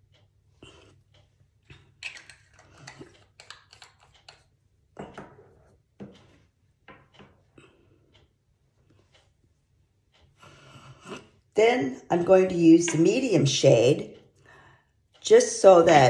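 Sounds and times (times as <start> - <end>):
makeup handling clicks and rustles: 2.0 - 4.4.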